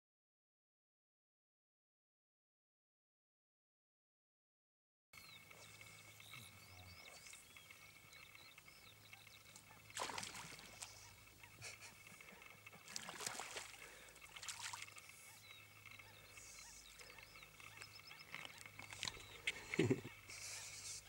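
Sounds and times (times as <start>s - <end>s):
water lapping and splashing: 9.6s - 11.3s, 12.2s - 15.4s.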